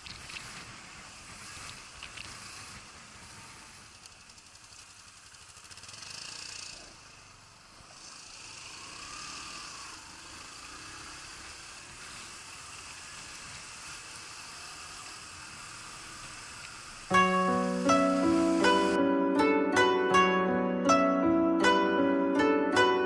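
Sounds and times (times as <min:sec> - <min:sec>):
wind and road noise: 0:00.0 - 0:17.1
motorcycle engine running: 0:00.0 - 0:18.9.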